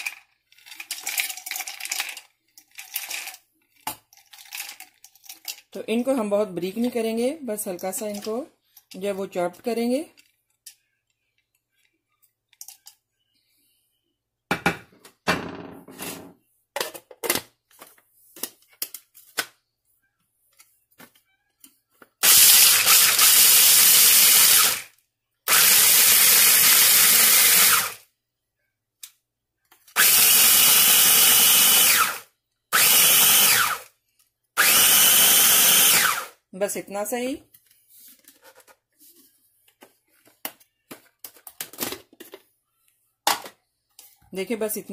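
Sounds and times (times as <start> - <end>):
food processor chopping nuts: 22.2 - 24.9, 25.5 - 28.0, 30.0 - 32.2, 32.8 - 33.9, 34.6 - 36.3.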